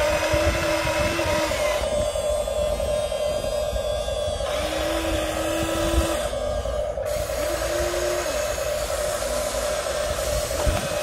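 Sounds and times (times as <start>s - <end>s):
electric motors whining: 0.0s - 11.0s
lower motor tone: 0.0s - 11.0s.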